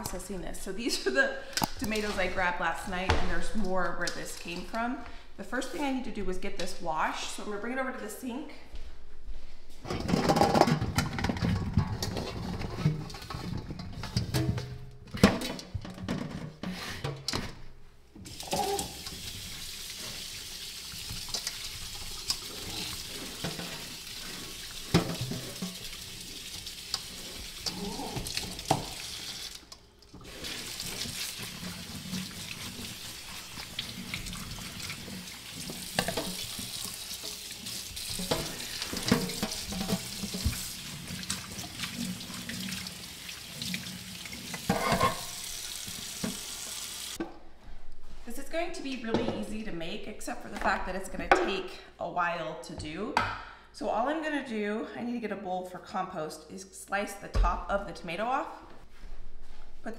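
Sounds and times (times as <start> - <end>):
tap water running into colander: 18.2 - 47.2.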